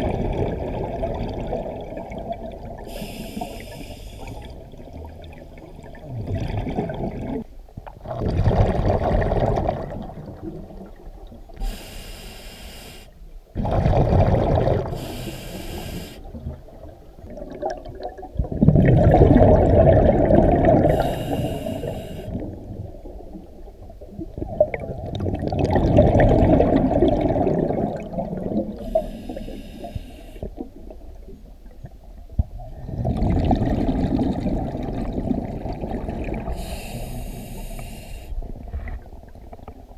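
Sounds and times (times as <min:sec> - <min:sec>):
exhaled bubbles rushing: 0:00.0 - 0:02.9, 0:04.3 - 0:11.4, 0:13.5 - 0:15.2, 0:16.2 - 0:29.0, 0:32.6 - 0:36.8
regulator inhalation hiss: 0:02.9 - 0:04.4, 0:11.6 - 0:13.2, 0:15.0 - 0:16.3, 0:20.9 - 0:22.4, 0:28.8 - 0:30.5, 0:36.6 - 0:38.4.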